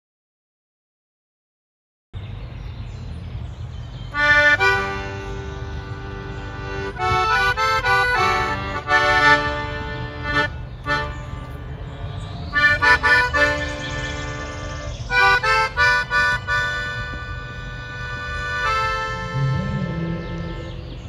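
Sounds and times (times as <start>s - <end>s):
piano accordion playing a tune: 4.2s - 21.0s
low rumble: 19.0s - 21.0s.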